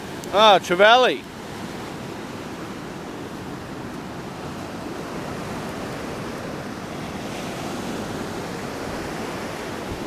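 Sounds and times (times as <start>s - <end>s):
ocean surf breaking on beach: 0.0s - 10.0s.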